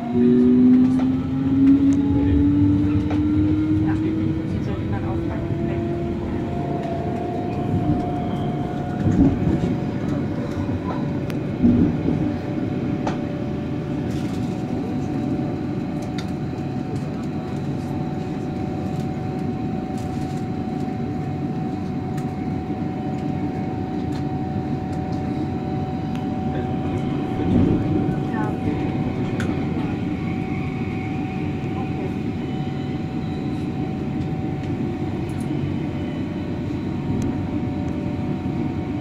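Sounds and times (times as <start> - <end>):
train wheels rumbling on rail: 0.0 - 39.0
heavy train bumps: 4.6 - 14.0.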